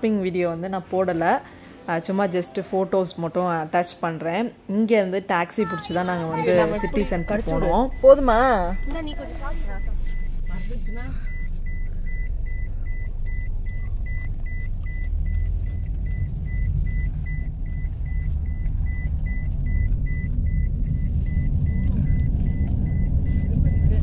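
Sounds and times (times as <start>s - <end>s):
road and engine rumble: 5.6s - 24.0s
high electronic warning beep: 6.4s - 24.0s.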